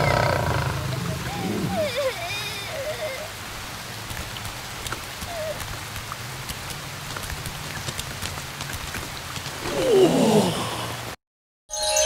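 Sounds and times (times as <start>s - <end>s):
raindrops ticking: 0.0s - 10.2s
steady rain: 0.0s - 11.2s.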